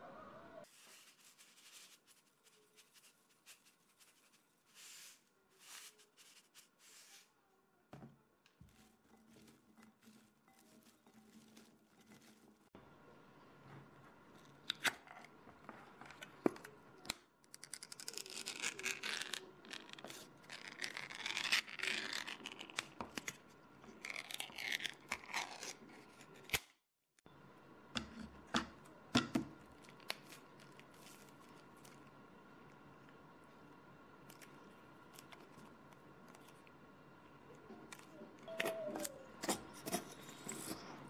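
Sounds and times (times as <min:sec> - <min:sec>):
thin metal scraping and tearing: 0:08.7 - 0:12.7, 0:17.7 - 0:26.7.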